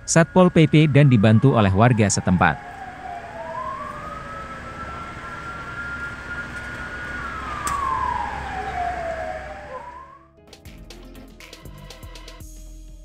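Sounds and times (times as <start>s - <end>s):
fire engine siren wailing: 0.0s - 10.3s.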